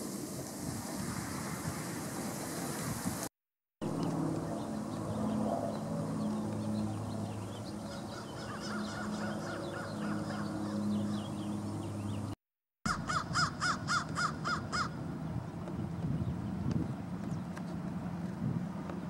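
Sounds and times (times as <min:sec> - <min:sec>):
crow cawing: 0:07.9 - 0:10.5, 0:12.9 - 0:15.0.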